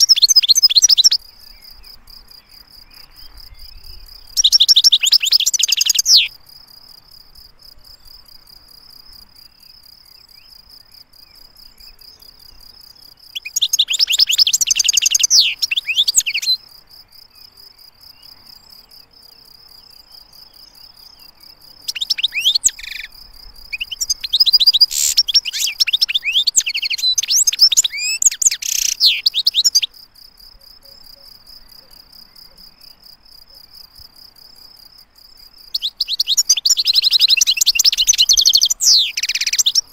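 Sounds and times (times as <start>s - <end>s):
goldfinch singing: 0.0s - 1.2s, 3.0s - 6.3s, 13.4s - 16.6s, 21.8s - 23.1s, 23.7s - 29.9s, 35.7s - 39.9s.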